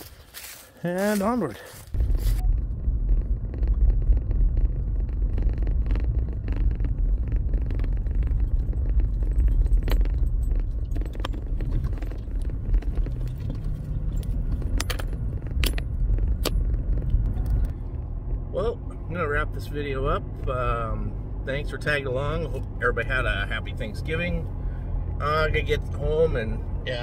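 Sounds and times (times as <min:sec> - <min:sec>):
truck rumbling on gravel road: 0:00.0 - 0:27.0
clicks and rattles: 0:03.6 - 0:17.7.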